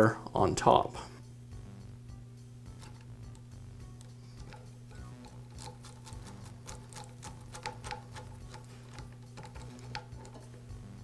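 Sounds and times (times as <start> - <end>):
low steady hum: 0.0 - 11.0
small metallic clicks: 4.0 - 10.6.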